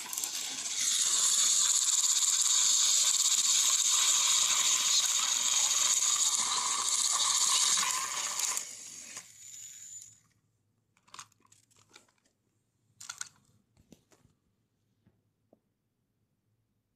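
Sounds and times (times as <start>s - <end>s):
toy train motor whirring: 0.0s - 10.3s
toy cars clattering on carpet: 6.8s - 12.4s, 13.0s - 14.3s.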